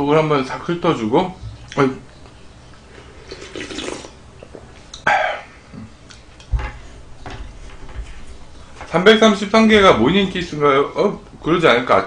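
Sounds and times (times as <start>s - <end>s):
person slurping broth: 2.9s - 4.2s
throat gulping sound: 3.2s - 6.1s.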